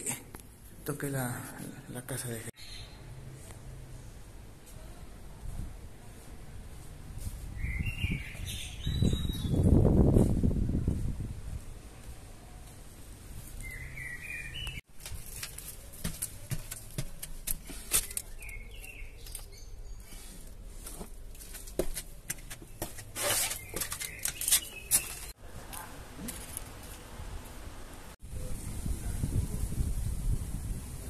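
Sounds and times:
small birds chirping: 7.6s - 9.8s, 13.6s - 14.8s, 17.5s - 20.5s, 22.6s - 25.9s.

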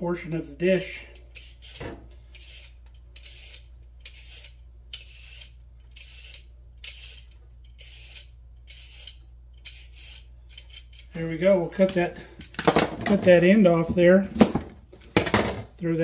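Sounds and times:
peeler scraping carrot: 0.8s - 12.0s.

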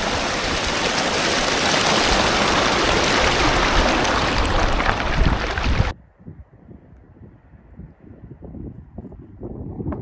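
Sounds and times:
creek water rushing: 0.0s - 5.9s.

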